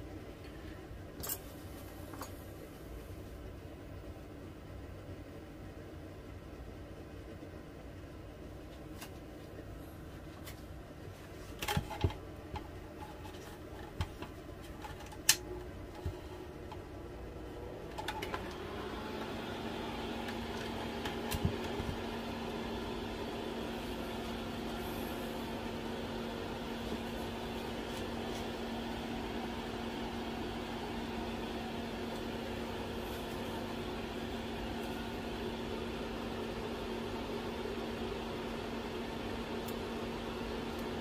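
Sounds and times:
electric fan humming: 0.0 - 41.0.

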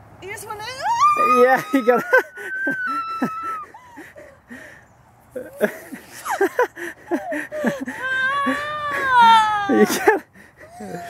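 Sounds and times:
person squealing: 0.9 - 3.7
person laughing and yelping: 1.1 - 4.4, 5.4 - 11.0.

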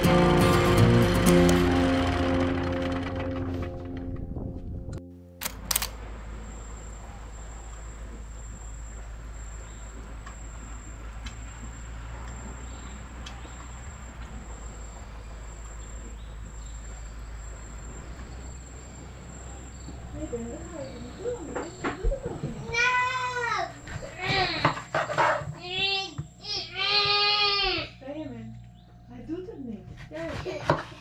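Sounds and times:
low rumble: 0.0 - 5.0
sharp clicks: 5.4 - 6.0
high-pitched insect trill: 6.4 - 27.7.

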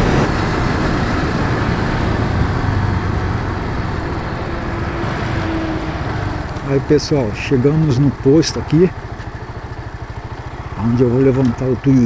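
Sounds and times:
wind rushing over microphone: 0.0 - 8.2
motorcycle engine running: 0.0 - 12.0.

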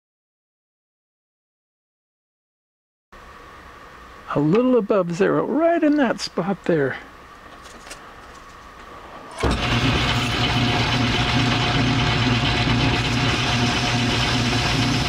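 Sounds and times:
lathe motor humming: 9.3 - 15.0.

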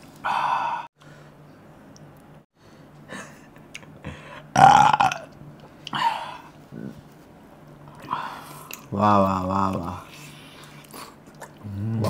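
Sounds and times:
man burping: 4.5 - 5.3.

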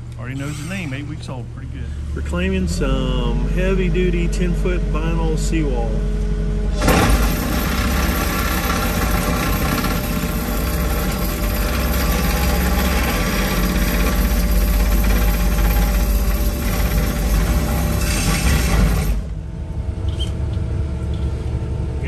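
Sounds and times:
excavator engine and hydraulics: 0.0 - 22.0.

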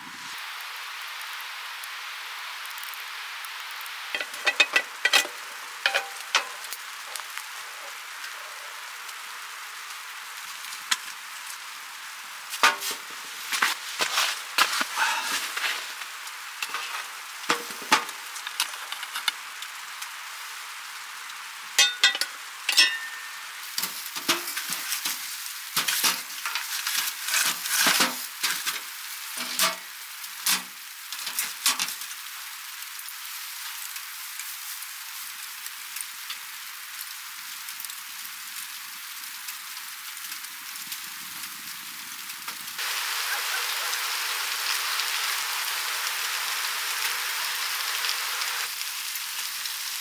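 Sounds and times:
stove sizzling hiss: 0.0 - 50.0
wood crackling and knocking: 4.2 - 7.5, 12.5 - 19.4.

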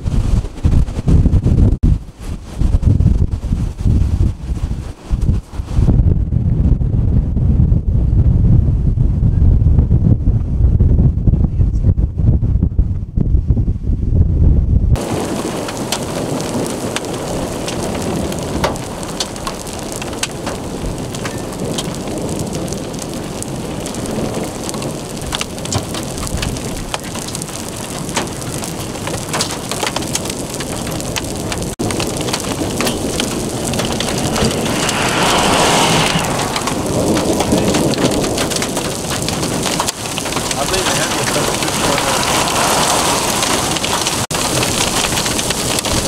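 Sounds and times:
hailstones ticking on asphalt: 15.0 - 46.0
rain hissing: 15.0 - 46.0.

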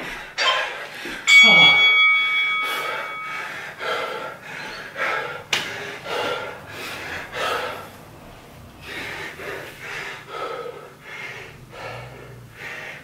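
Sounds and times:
bell-like chime: 1.3 - 3.6
man breathing hard and gasping: 2.6 - 8.1, 8.8 - 13.0.

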